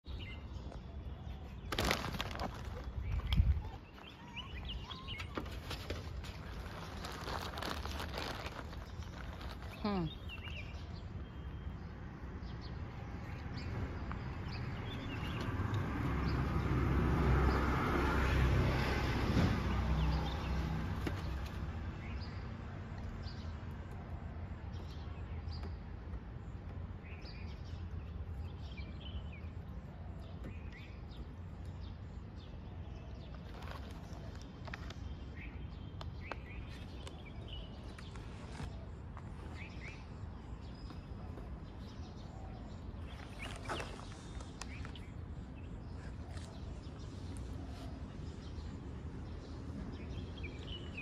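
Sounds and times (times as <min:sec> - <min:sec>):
small birds chirping: 0:00.0 - 0:51.0
vehicle passing: 0:12.7 - 0:22.2.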